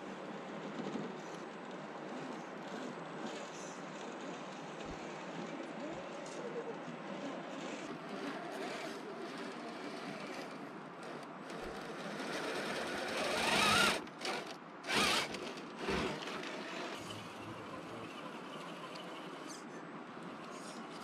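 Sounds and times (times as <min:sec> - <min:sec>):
electric motor whining: 0:07.7 - 0:17.3.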